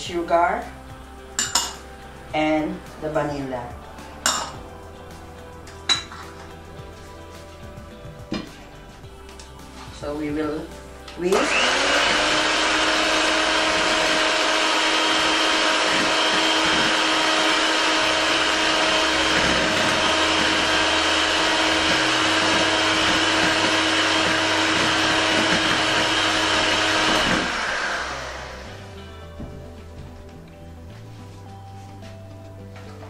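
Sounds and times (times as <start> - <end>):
electric hand mixer whining: 11.3 - 29.5.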